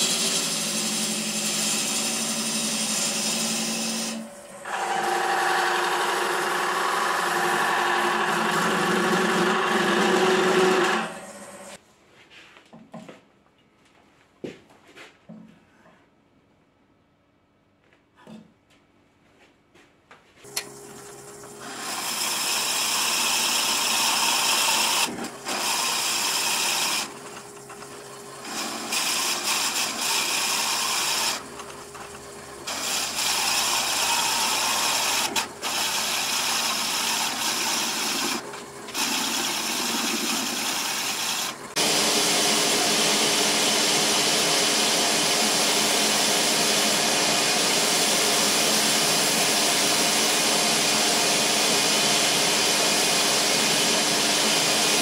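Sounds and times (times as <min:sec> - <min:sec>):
drill bit boring into spinning wood: 0:00.0 - 0:11.8, 0:20.6 - 0:55.0
lathe humming: 0:00.0 - 0:11.8, 0:20.5 - 0:55.0.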